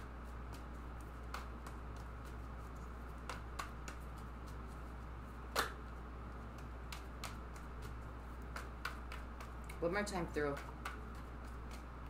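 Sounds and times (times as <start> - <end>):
cards being shuffled: 0.0 - 12.0.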